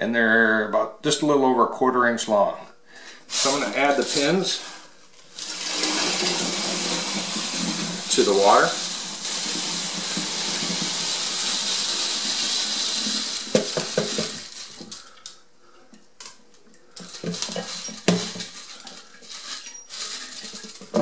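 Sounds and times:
metal pins pouring into water: 5.3 - 15.3, 17.0 - 21.0.

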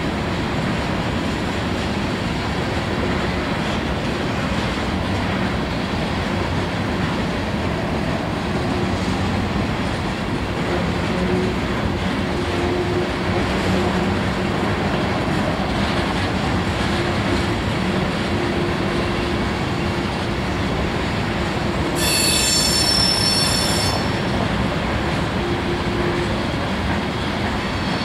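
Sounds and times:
train wheels rumbling on rail: 0.0 - 28.0
metallic wheel squeal: 22.0 - 24.2.

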